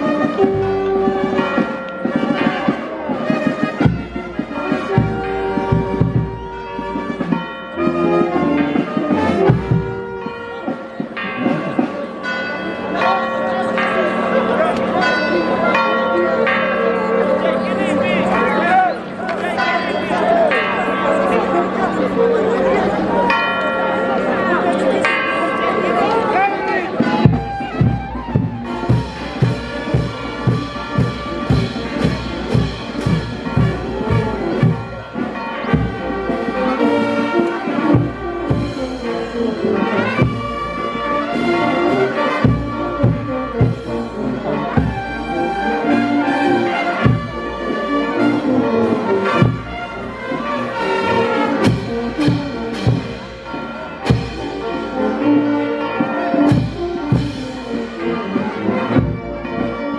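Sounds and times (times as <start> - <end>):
steady drum beat: 0.0 - 7.4, 8.5 - 10.3, 27.0 - 54.7, 56.4 - 57.9
brass band playing: 0.0 - 23.4, 24.0 - 59.9.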